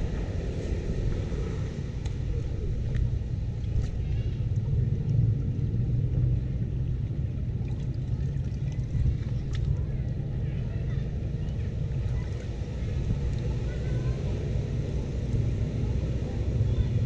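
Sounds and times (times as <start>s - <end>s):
water draining into drain: 6.8s - 10.2s.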